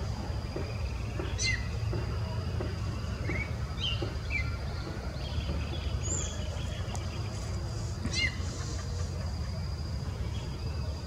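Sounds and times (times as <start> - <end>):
thrush singing whistled notes: 0.6 - 2.0.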